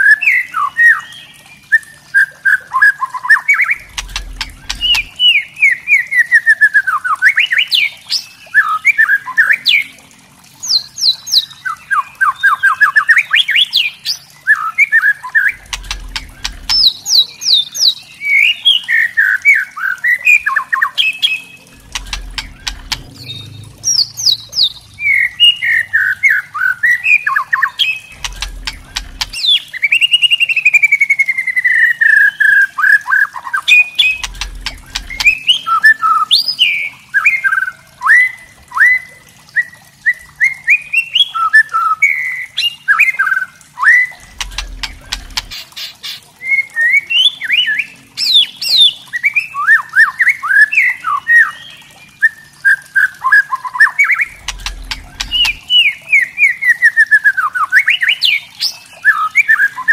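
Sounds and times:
bird clicking notes: 0:03.8 - 0:05.2, 0:15.6 - 0:16.9, 0:21.8 - 0:25.8, 0:28.1 - 0:29.4, 0:34.2 - 0:35.5, 0:54.3 - 0:55.7.

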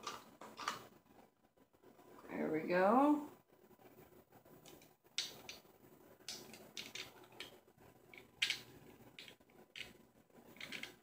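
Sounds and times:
dentures clicking and scraping: 0:06.3 - 0:11.0.

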